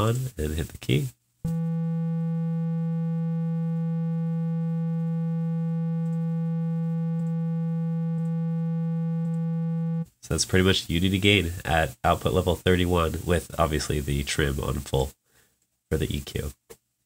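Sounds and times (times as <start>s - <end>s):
synthesizer steady low note: 1.5s - 10.1s.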